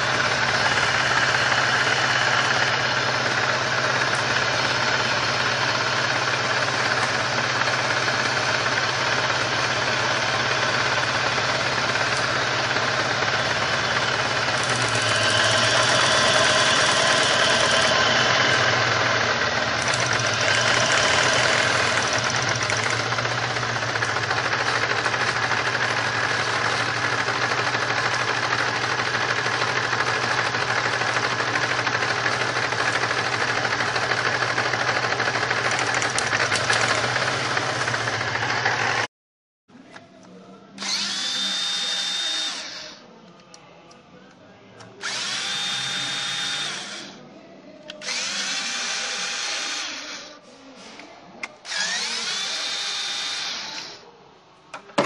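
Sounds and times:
car engine idling with misfire: 0.0 - 39.1.

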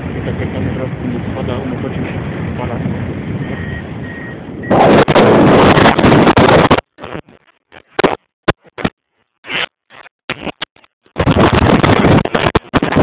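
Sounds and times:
wind buffeting microphone: 0.0 - 6.8, 11.2 - 13.0.

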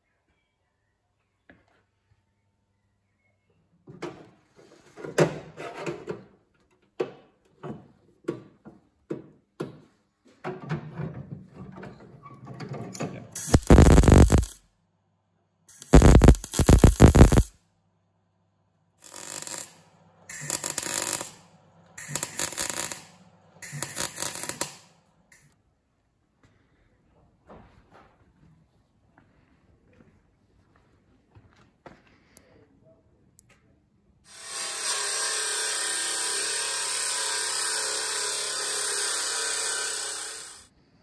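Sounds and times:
crackling welding arc: 13.4 - 14.6, 15.7 - 17.5, 19.0 - 25.5, 36.4 - 40.7.

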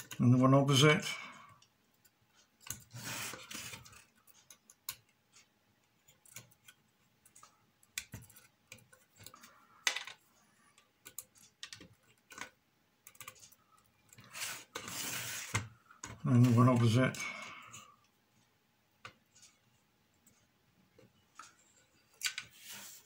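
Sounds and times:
rustle of handling: 22.2 - 23.0.

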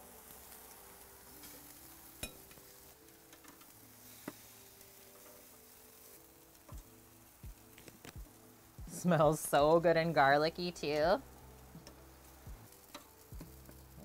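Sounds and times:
food sizzling on grill: 0.0 - 14.0
tongs clicking: 2.2 - 2.6.

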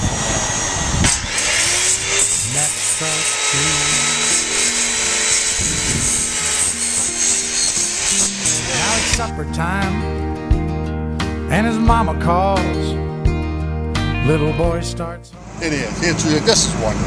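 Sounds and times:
circular saw cutting wood: 0.0 - 9.3
background music with bass line: 5.6 - 16.0.

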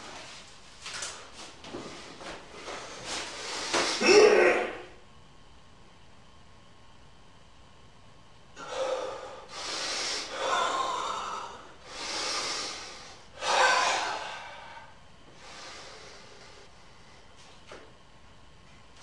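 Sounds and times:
person breathing hard: 8.6 - 17.3.

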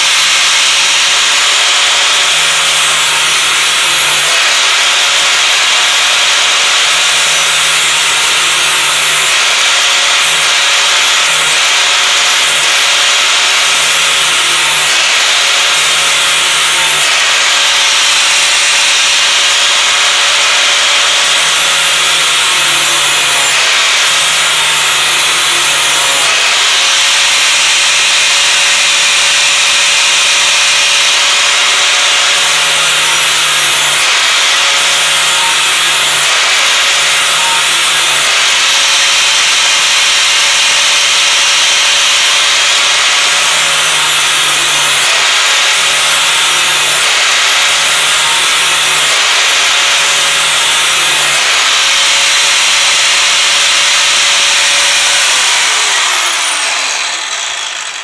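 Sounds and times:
angle grinder grinding steel: 0.0 - 58.0.

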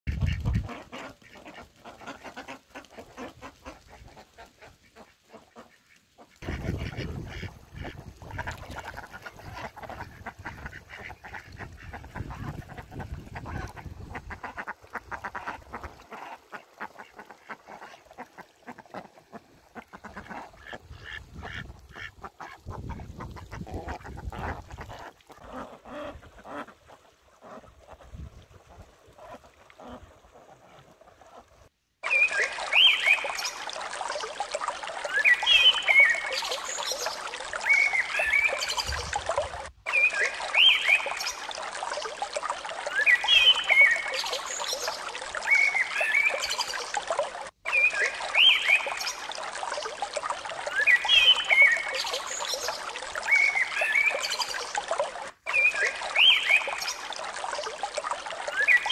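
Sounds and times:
ducks quacking: 0.1 - 28.1.

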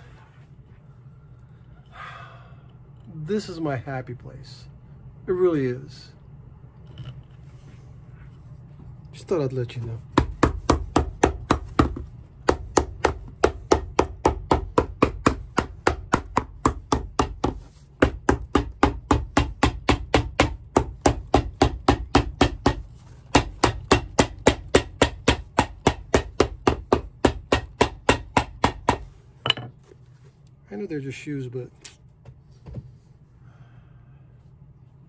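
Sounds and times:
hammer tapping on a shoe: 10.1 - 29.6.

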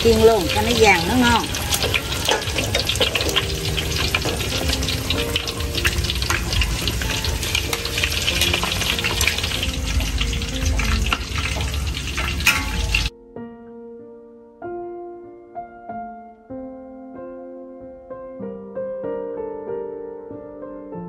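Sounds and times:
food sizzling in hot oil: 0.0 - 13.1.

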